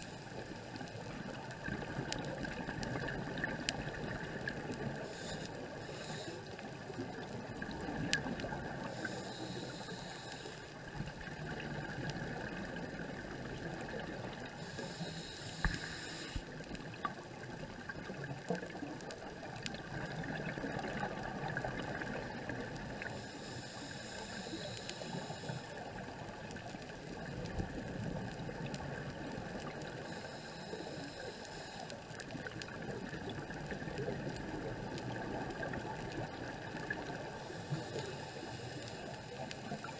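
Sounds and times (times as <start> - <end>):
faint clicks: 0.0 - 39.9
underwater ambience: 0.0 - 39.9
diver breathing through regulator: 5.0 - 6.9, 8.8 - 10.8, 14.5 - 16.5, 23.0 - 25.9, 30.0 - 32.0, 37.2 - 39.9.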